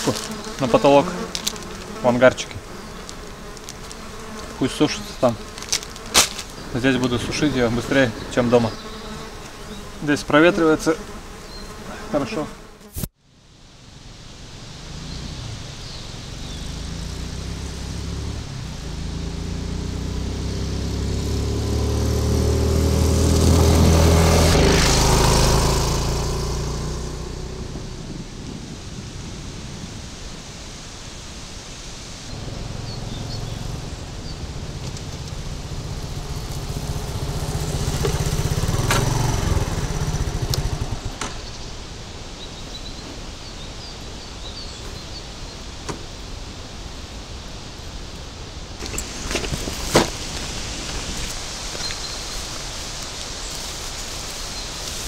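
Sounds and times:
motorcycle engine passing: 0.0 - 12.0, 14.3 - 30.0, 32.3 - 41.9.

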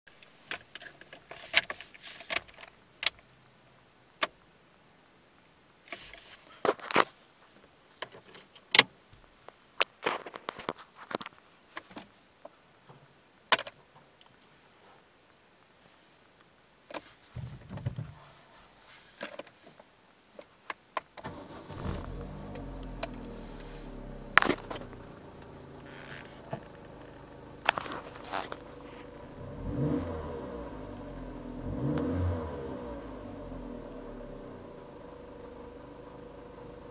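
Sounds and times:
car engine cranking and idling: 21.2 - 36.9.

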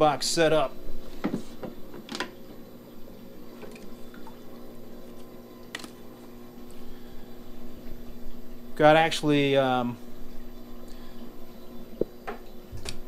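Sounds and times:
pumps humming: 0.0 - 13.0
water trickling and dripping: 2.3 - 13.0.

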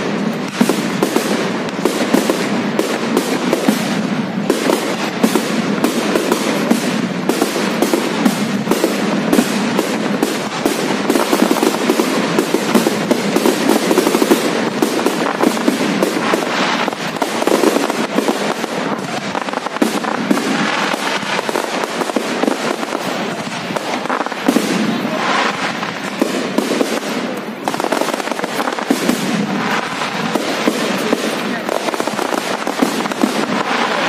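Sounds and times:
fireworks bursting and crackling: 0.0 - 34.0.

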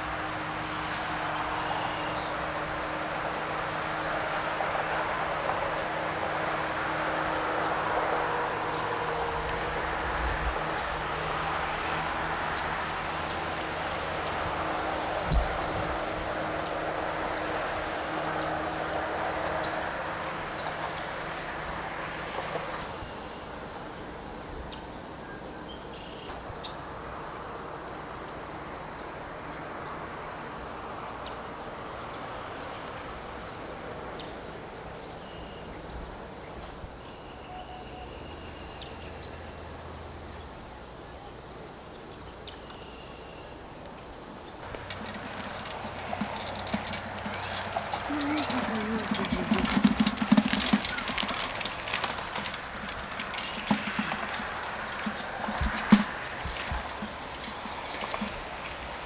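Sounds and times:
small birds chirping: 31.2 - 59.0.

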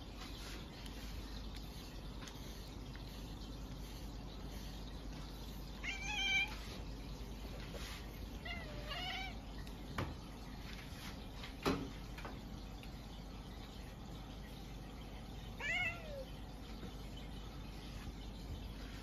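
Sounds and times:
cat meowing: 5.8 - 6.6, 15.6 - 16.3.

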